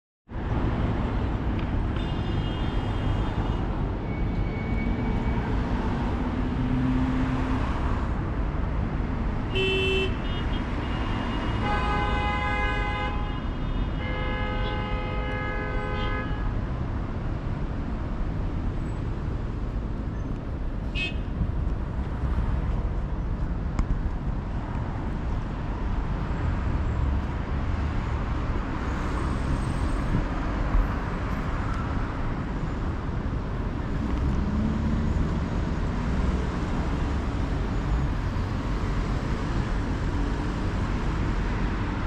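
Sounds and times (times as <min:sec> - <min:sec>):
road traffic noise: 0:00.3 - 0:42.0
car horns honking: 0:09.5 - 0:16.5.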